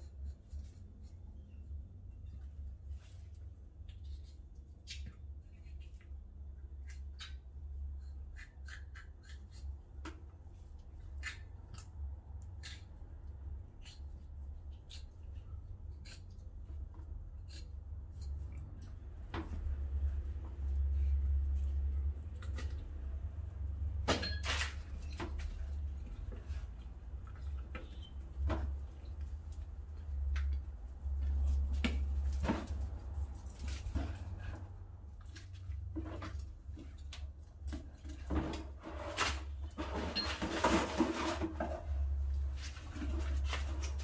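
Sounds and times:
knife scraping strokes: 6.8 - 9.8, 12.5 - 18.6
knocks and scrapes: 14.9 - 44.0.

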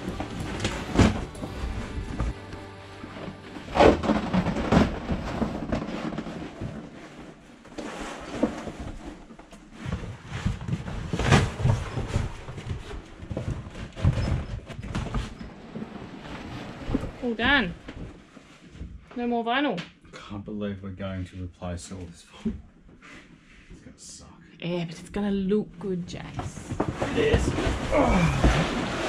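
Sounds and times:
vinyl sheets rustling and flapping: 0.0 - 18.8, 26.6 - 29.0.

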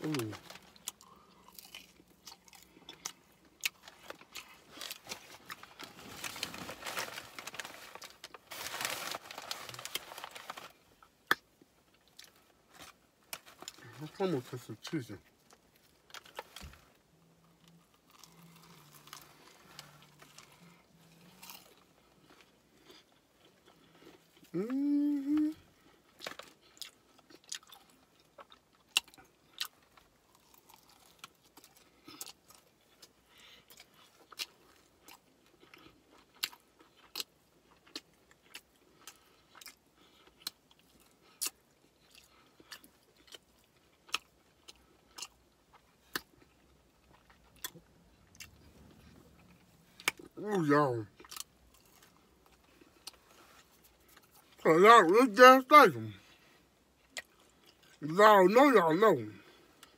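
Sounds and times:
crunching and chewing chicken wings: 0.0 - 59.9
person humming mm: 24.5 - 25.6.

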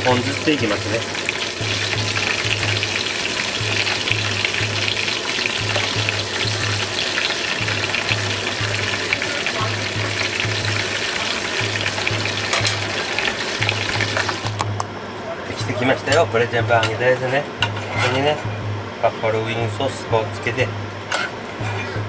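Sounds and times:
tongs stirring in fryer: 0.0 - 14.5
oil crackling and sizzling: 0.0 - 14.6
pulsing low hum: 18.5 - 19.0.

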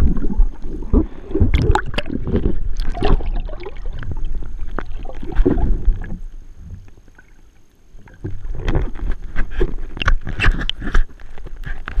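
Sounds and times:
water splashing: 0.0 - 6.3
water sloshing underwater: 0.0 - 12.0.

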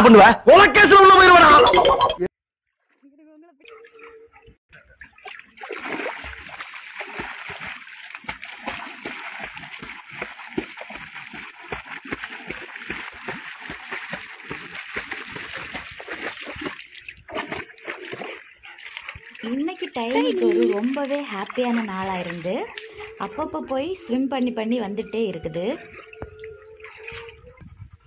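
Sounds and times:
dog splashing through water: 2.8 - 24.1, 24.9 - 27.6
rush of churned water: 4.8 - 23.3, 25.7 - 27.5.

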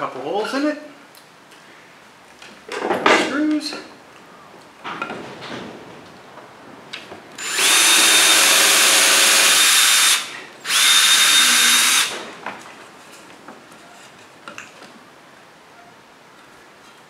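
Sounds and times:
cordless drill boring wood: 7.4 - 12.2.

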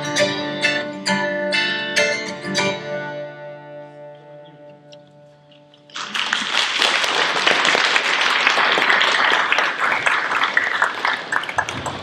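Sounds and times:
audience applause: 5.9 - 12.0.

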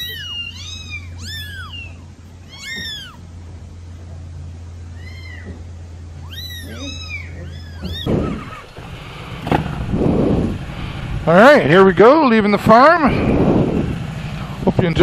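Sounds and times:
kitten meowing: 0.0 - 3.3, 4.9 - 5.6, 6.2 - 8.7
low steady hum: 0.0 - 15.0
motorcycle running: 7.8 - 15.0.

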